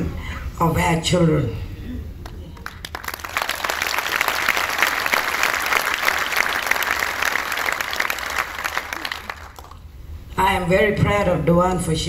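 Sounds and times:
audience applauding: 0:02.4 - 0:09.8.

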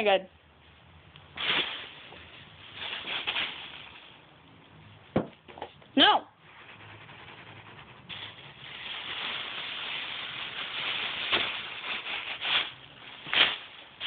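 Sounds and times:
plastic bag rustling and crinkling: 0:01.3 - 0:04.3, 0:08.1 - 0:14.0.

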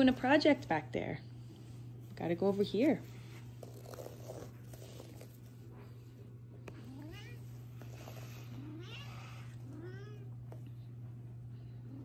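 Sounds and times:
steady low hum: 0:00.0 - 0:12.0
cat meowing: 0:08.6 - 0:10.3.

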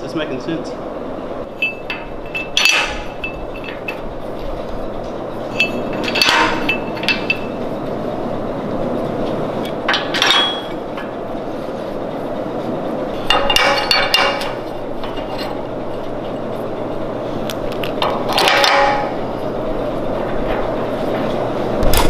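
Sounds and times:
steady hum: 0:00.0 - 0:22.0
metal bolts clinking on steel table: 0:01.6 - 0:04.0, 0:05.5 - 0:07.6, 0:09.9 - 0:10.8, 0:13.2 - 0:15.6, 0:18.3 - 0:19.2.

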